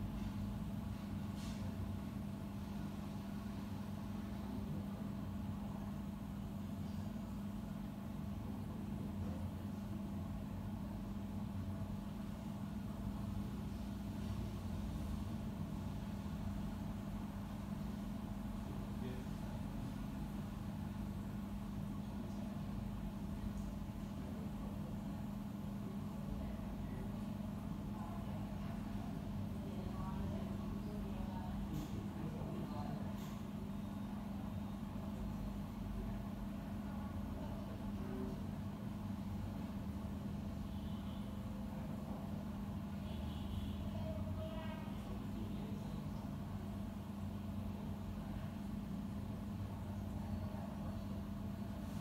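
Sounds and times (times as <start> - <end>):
low machine hum: 0.0 - 52.0.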